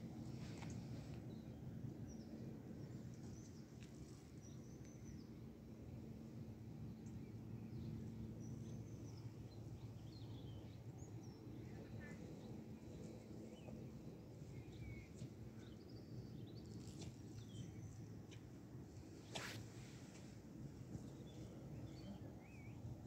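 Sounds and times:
faint birds chirping: 0.0 - 23.0.

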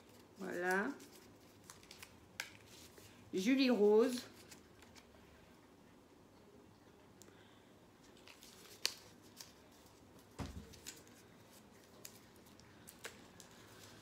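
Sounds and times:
paper crinkling: 0.0 - 3.2, 8.0 - 14.0.

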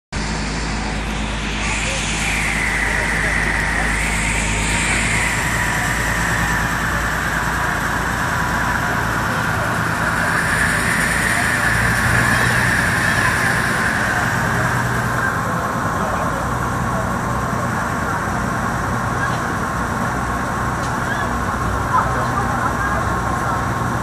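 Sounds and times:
boat engine humming: 0.1 - 24.0
water rushing: 0.2 - 16.0.

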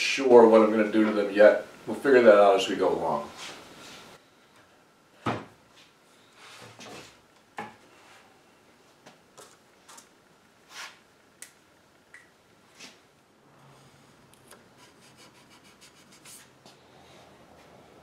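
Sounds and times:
wooden chair knocking on workbench: 5.2 - 5.5.

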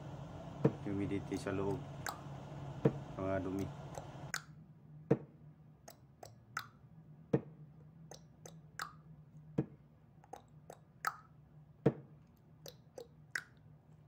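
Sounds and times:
steady low hum: 0.0 - 4.4.

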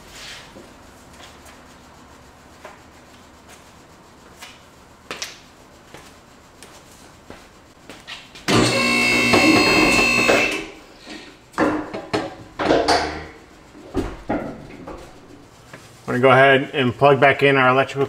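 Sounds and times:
light knocks and rubbing: 11.6 - 16.1.

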